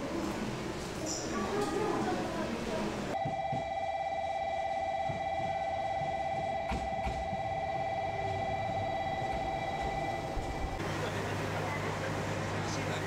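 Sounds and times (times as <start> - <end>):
electronic ringing signal: 3.2 - 10.8.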